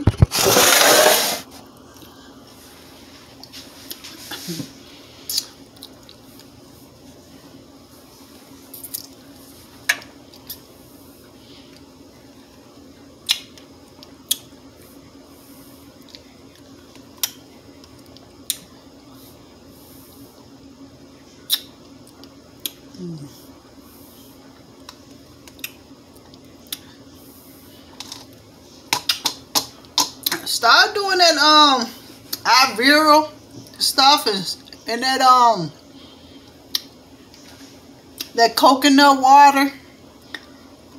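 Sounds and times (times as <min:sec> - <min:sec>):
faint low hum: 0:01.5 - 0:40.9
mouth clicks and lip smacks: 0:05.3 - 0:06.2, 0:13.2 - 0:13.6, 0:21.5 - 0:22.8, 0:25.4 - 0:25.8.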